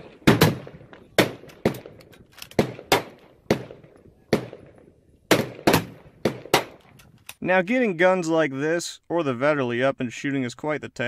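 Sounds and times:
gunshots with echo: 0.0 - 2.0, 2.6 - 6.8.

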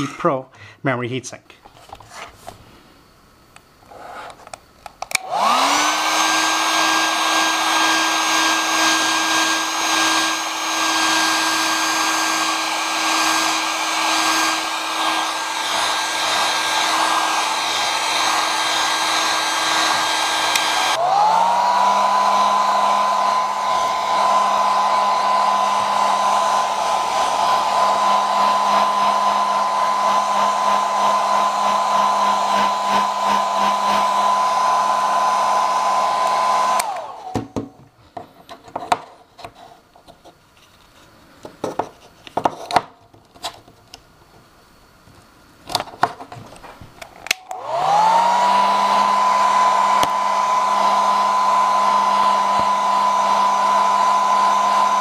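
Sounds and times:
hair dryer switch click: 5.0 - 5.4, 20.4 - 21.0, 36.2 - 37.3, 47.2 - 48.1, 49.8 - 50.9
hair dryer motor whine: 5.0 - 37.8, 47.2 - 55.0.

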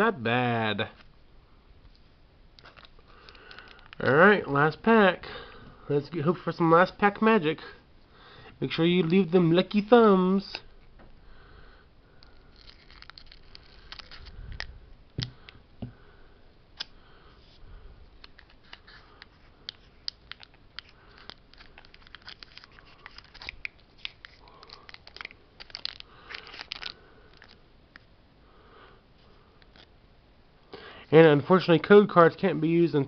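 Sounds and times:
foil wrapper crinkling: 2.6 - 4.0, 12.2 - 14.7, 18.2 - 27.6.

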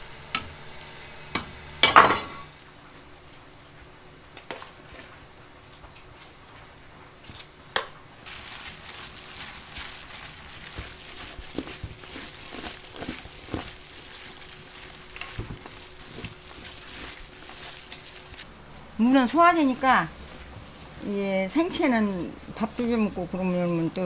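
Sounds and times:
wet crackly rustle of tossed radish: 8.2 - 24.0.

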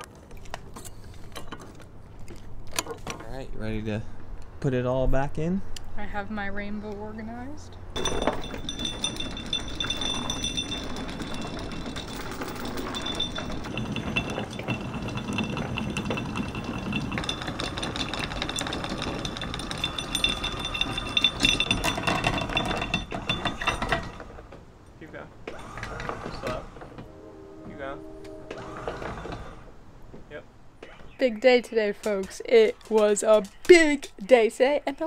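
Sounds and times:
anchor chain rattling and clanking: 7.8 - 24.7, 25.5 - 27.1, 28.6 - 29.7.

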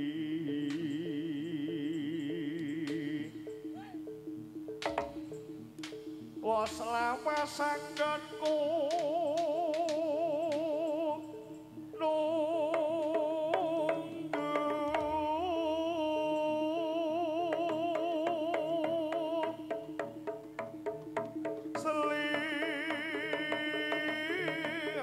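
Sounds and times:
vibrato melody line: 0.0 - 25.0
sharp percussive strokes: 2.9 - 10.8.

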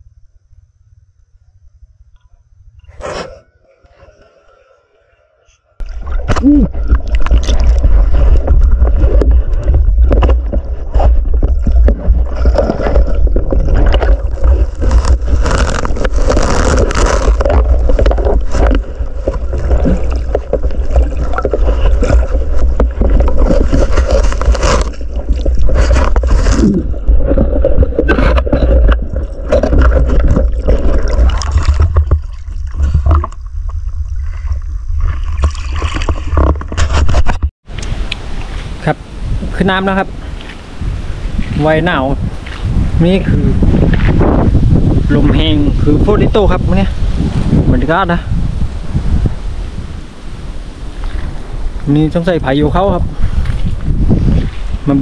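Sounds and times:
bubbling: 5.8 - 36.8
underwater water rumble: 5.8 - 37.2, 37.9 - 55.0
knocks and scrapes: 5.8 - 37.5, 41.4 - 45.2.

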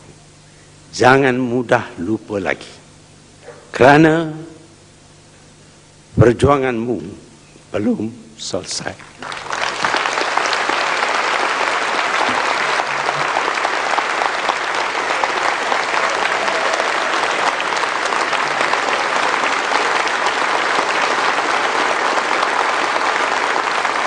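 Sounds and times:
large audience applauding: 9.0 - 24.0.

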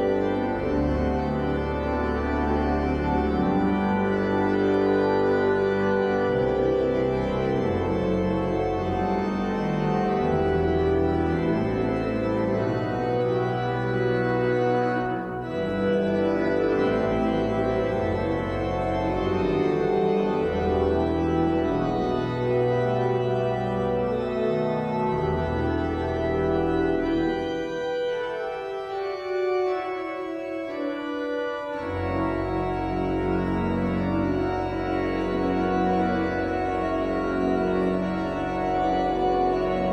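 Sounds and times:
organ bass line: 0.0 - 39.9
organ chords: 0.0 - 39.9.

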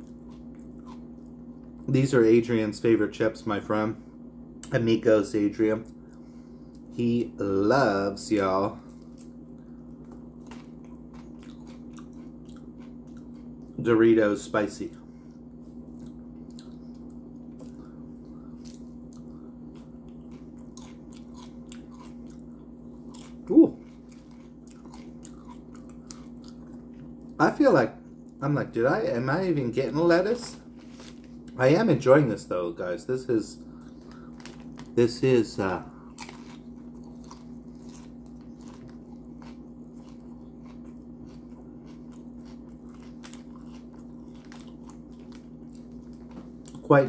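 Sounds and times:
person chewing crunchy chips: 0.0 - 1.9, 8.2 - 13.9, 14.9 - 27.4, 33.6 - 47.0
low hum: 0.0 - 47.0.

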